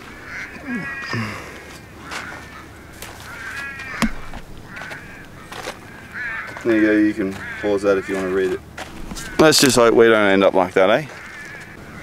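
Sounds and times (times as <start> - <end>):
crows calling: 0.0 - 12.0
sharp knock: 4.0 - 4.4.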